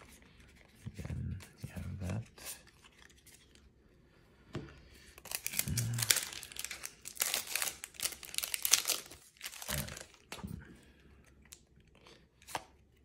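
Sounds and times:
foil wrapper crinkling and tearing: 5.2 - 10.3.

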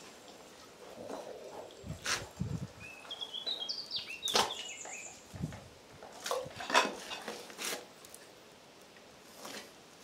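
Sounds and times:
small bird chirping: 2.8 - 5.3.

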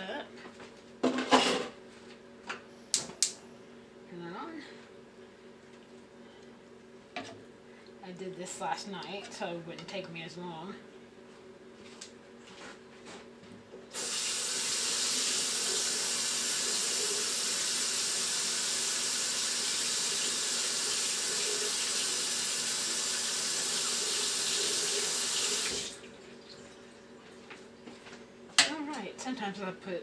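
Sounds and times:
water running into sink: 13.9 - 26.6.

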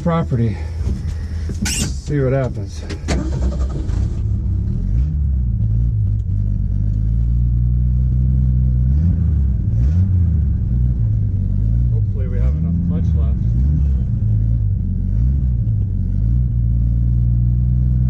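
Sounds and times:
truck engine revving: 3.1 - 18.0.

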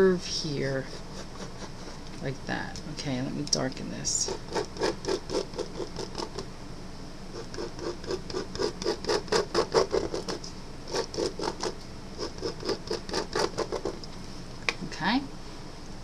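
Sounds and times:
marker scratching on paper: 0.6 - 2.0, 4.3 - 6.4, 7.3 - 14.0.

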